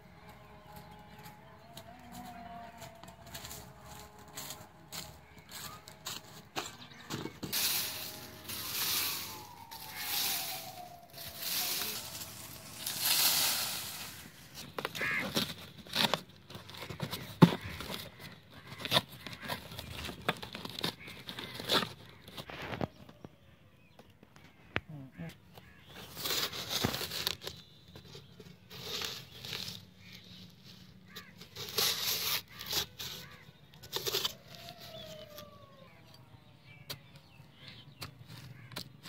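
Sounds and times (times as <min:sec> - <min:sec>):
footsteps crunching dry leaves: 0:00.1 - 0:22.8, 0:26.0 - 0:35.9
cardboard carton being folded: 0:07.5 - 0:22.5.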